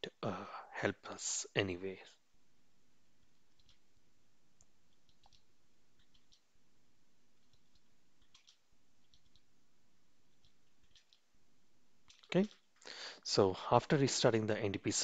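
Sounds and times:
computer keys clicking: 3.2s - 3.9s, 4.6s - 6.5s, 7.4s - 9.5s, 10.3s - 11.3s, 12.0s - 12.9s.

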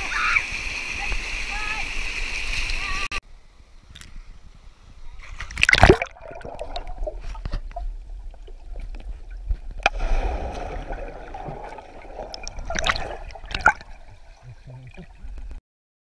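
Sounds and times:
churning water: 5.5s - 15.6s
underwater splashing and bubbling: 5.5s - 15.6s
sharp knock underwater: 9.8s - 11.7s.

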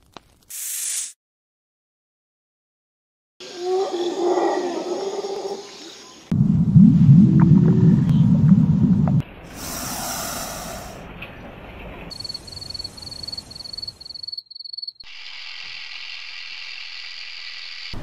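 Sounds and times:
noisy hissing: 7.4s - 11.1s, 15.1s - 18.0s
snake hissing: 9.5s - 11.0s.

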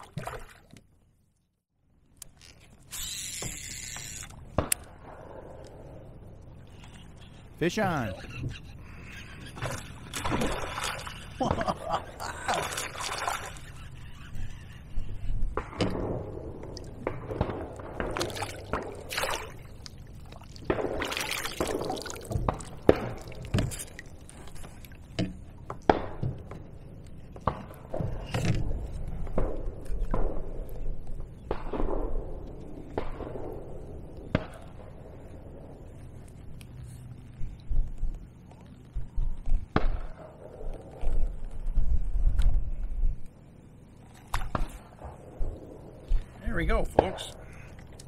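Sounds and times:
water splashing and dripping: 0.0s - 0.8s, 9.6s - 13.7s, 16.5s - 26.5s.

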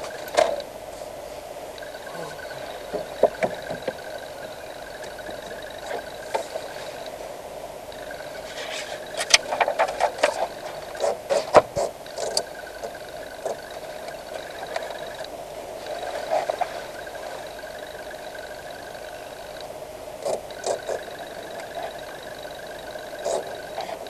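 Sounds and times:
car interior engine noise: 0.0s - 24.0s.

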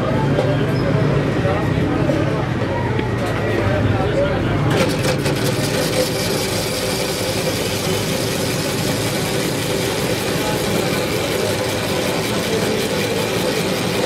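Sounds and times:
engine-like hum: 0.0s - 14.0s
ice-shaving machine running: 4.7s - 14.0s
blade shaving ice: 4.8s - 14.0s.

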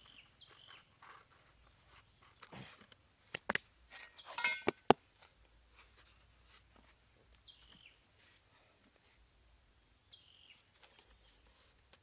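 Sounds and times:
crinkling rustle: 10.6s - 12.0s.

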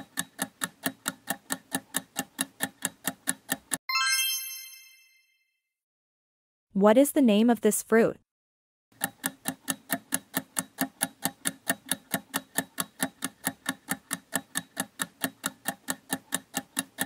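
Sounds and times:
clock-like ticking: 0.0s - 3.8s, 9.0s - 17.0s.

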